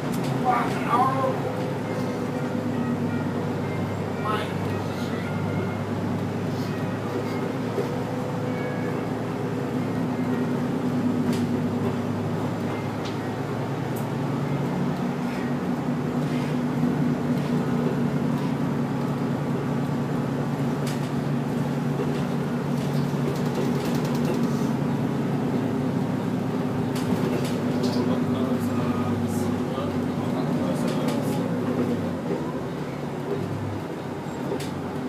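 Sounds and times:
bus engine drone: 0:00.0 - 0:35.0
sharp rattles and clicks: 0:22.8 - 0:24.6.

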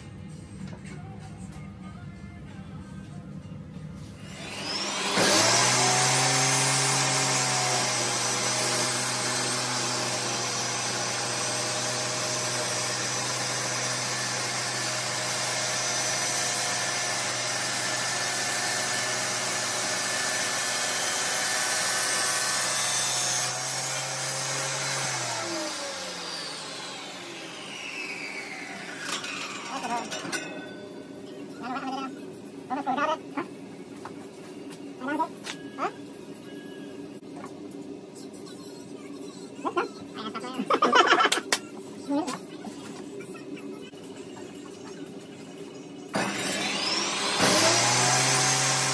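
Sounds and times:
saw crosscutting wood panel: 0:04.2 - 0:30.4, 0:46.1 - 0:48.9
table saw running: 0:04.2 - 0:30.9, 0:46.1 - 0:48.9.

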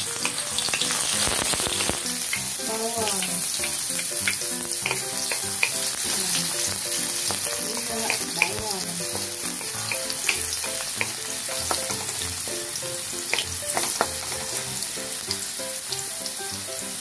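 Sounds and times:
garlic sizzling in hot oil: 0:00.0 - 0:17.0
wooden spatula scraping wok: 0:03.9 - 0:15.0.

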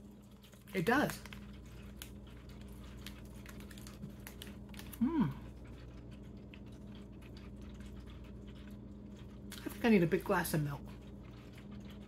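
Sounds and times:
person chewing: 0:00.0 - 0:12.0
person humming: 0:05.0 - 0:05.4.

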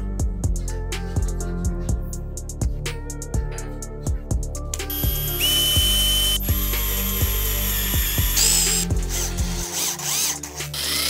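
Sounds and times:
background music with beat: 0:00.0 - 0:11.0
small drill whining: 0:04.9 - 0:11.0.

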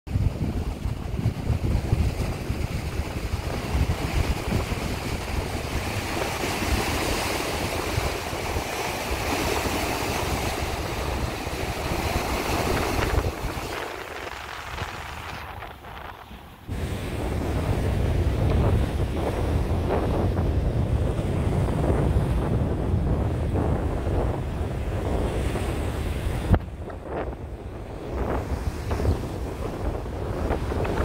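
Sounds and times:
wind buffeting microphone: 0:00.1 - 0:31.0
waves breaking on rocks: 0:00.4 - 0:20.1.

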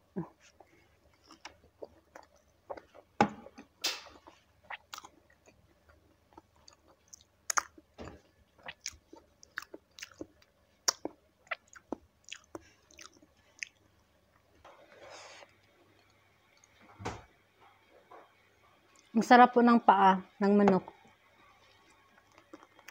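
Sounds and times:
crunchy chewing: 0:04.6 - 0:07.8, 0:08.6 - 0:14.4, 0:21.9 - 0:22.9.

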